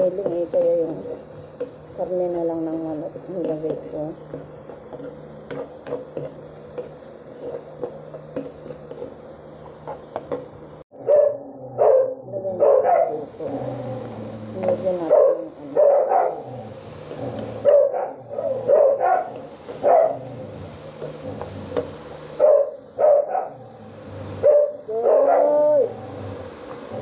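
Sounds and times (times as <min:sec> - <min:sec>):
steady hum: 0:00.0 - 0:27.0
dog barking: 0:11.0 - 0:13.3, 0:15.1 - 0:16.4, 0:17.6 - 0:20.3, 0:22.4 - 0:23.6, 0:24.4 - 0:25.9.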